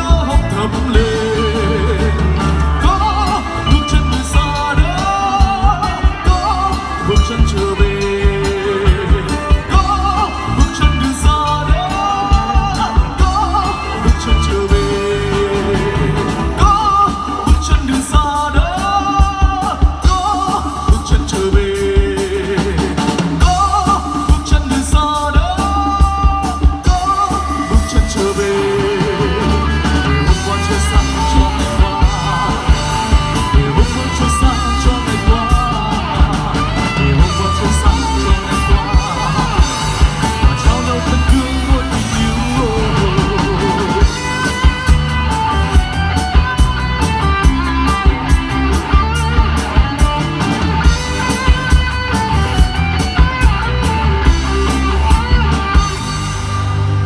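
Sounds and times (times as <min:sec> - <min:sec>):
man singing through speakers: 0:00.0 - 0:44.7
live rock band playing: 0:00.0 - 0:57.0.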